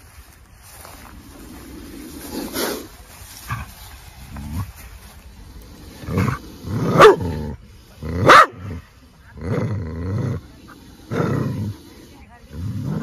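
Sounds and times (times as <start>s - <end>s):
dog barking: 7.0s - 7.3s, 8.2s - 8.6s.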